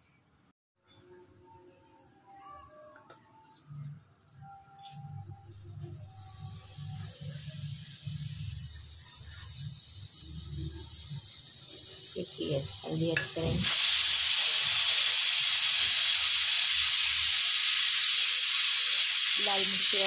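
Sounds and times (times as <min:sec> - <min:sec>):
pressure cooker hissing steam: 0:06.2 - 0:20.0.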